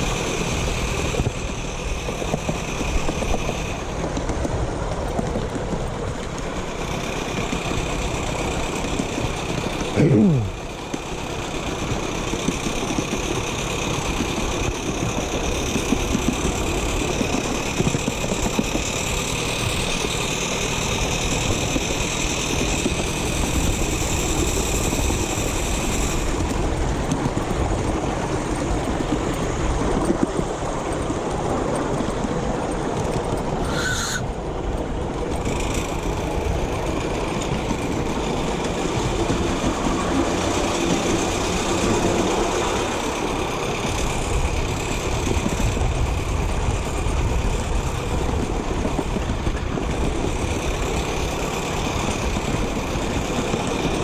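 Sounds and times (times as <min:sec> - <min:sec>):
miniature steam train rumbling: 0:00.0 - 0:54.0.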